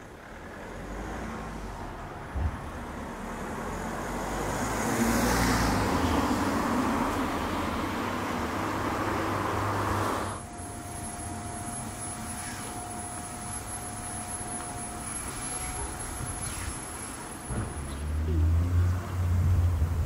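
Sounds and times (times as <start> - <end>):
outdoor background noise: 0.0 - 20.0
passing car road noise: 0.0 - 20.0
faint steady whine: 10.2 - 18.1.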